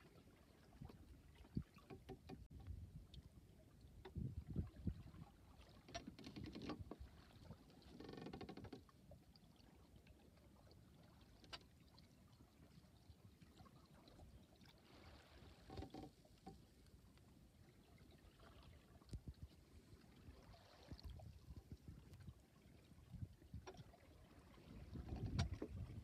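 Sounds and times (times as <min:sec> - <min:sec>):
water washing along boat hull: 0:04.0 - 0:26.0.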